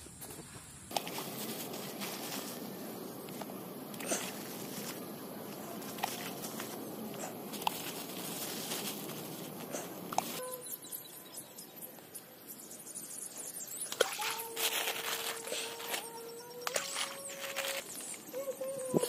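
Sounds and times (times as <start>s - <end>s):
faint steady hum: 0.0s - 14.0s
plastic bag rustling and clicking: 0.9s - 10.4s.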